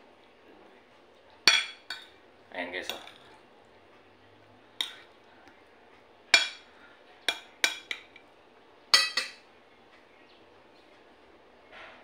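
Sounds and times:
cutlery clinking on a plate: 6.3s - 6.7s, 7.3s - 8.3s, 8.9s - 9.4s.

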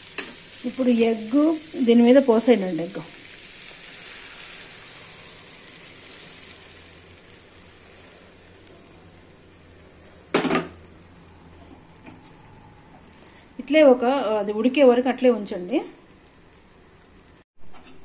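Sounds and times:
egg sizzling on hot pan: 0.0s - 11.6s.

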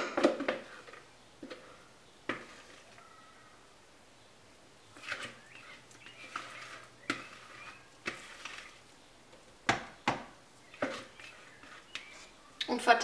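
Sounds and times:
spatula scraping plastic bowl: 0.1s - 3.0s, 4.9s - 8.9s, 10.7s - 12.4s.

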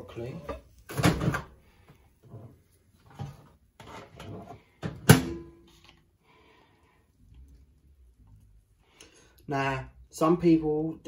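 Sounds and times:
kitchen items knocking and scraping: 0.0s - 5.9s.

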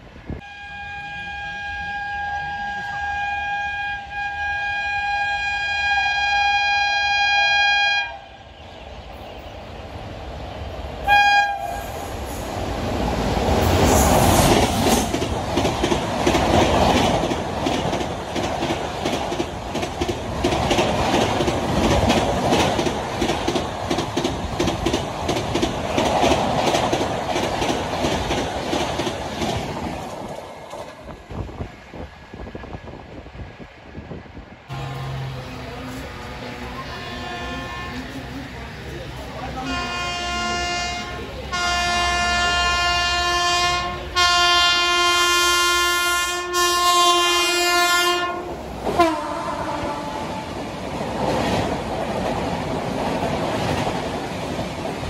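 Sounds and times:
train passing at full speed: 0.0s - 55.0s
train horn blast: 0.4s - 8.6s, 11.1s - 12.1s, 34.7s - 38.2s, 39.6s - 50.5s
wheels clickety-clack: 13.6s - 31.2s, 51.0s - 55.0s.

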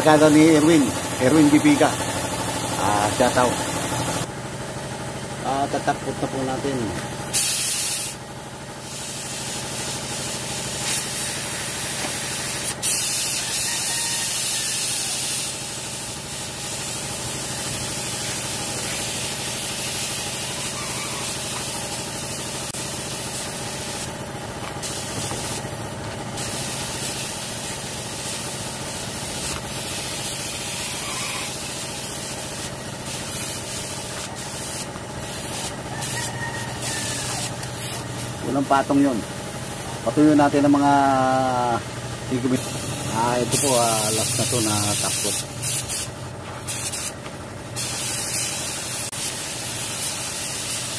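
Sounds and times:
motor hum: 0.0s - 7.4s, 17.0s - 30.7s
spray gun hissing: 7.4s - 8.2s, 8.8s - 24.2s, 24.8s - 25.7s, 26.4s - 36.1s, 42.3s - 46.1s, 46.7s - 47.2s, 47.8s - 50.9s.

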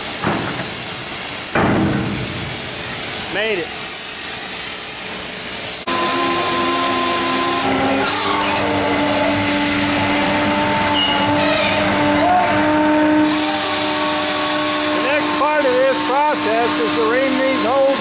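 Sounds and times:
steady hiss: 0.0s - 5.9s
heavy drill whining: 5.9s - 18.0s.

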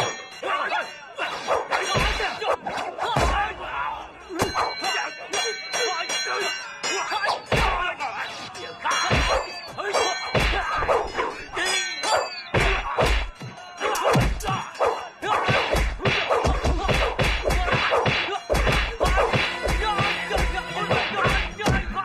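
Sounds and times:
fight punches and staff blows: 7.5s - 7.9s, 10.4s - 10.9s, 12.5s - 14.7s, 15.3s - 22.0s.

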